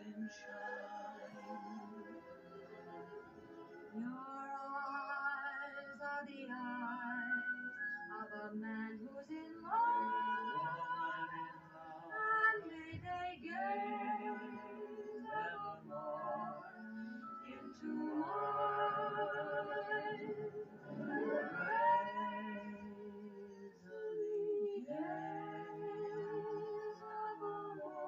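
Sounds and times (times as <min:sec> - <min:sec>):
person singing with vibrato: 0:04.0 - 0:28.0.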